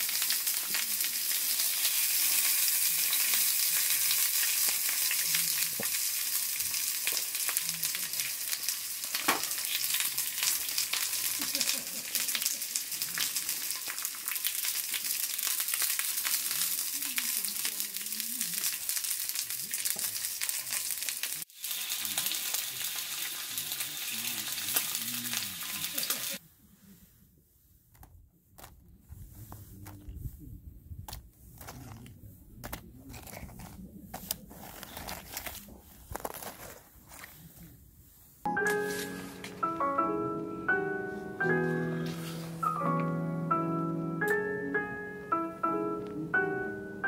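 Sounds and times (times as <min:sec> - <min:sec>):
meat sizzling in frying pan: 0:00.0 - 0:26.4.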